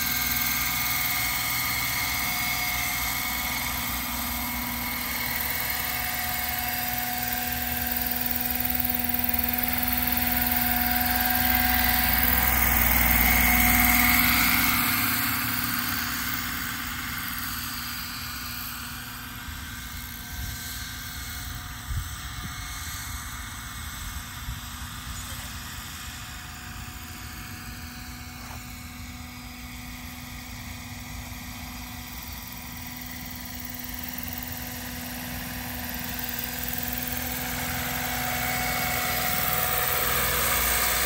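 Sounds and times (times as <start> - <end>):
model helicopter rotor whine: 0.0 - 41.0.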